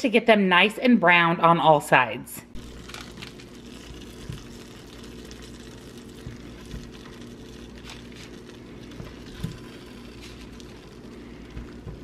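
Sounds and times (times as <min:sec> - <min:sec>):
butter and oil sizzling: 0:02.6 - 0:12.0.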